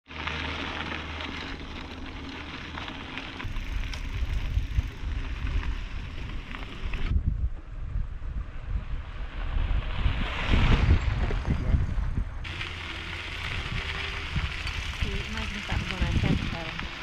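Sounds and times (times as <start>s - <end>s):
bicycle tyres on dirt road: 0.0s - 17.0s
wind buffeting microphone: 3.4s - 17.0s.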